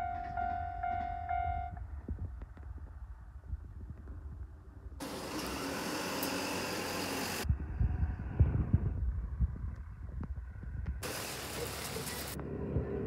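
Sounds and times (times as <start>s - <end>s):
rain hissing: 5.0s - 7.4s, 11.0s - 12.4s
low rumble: 7.4s - 11.0s.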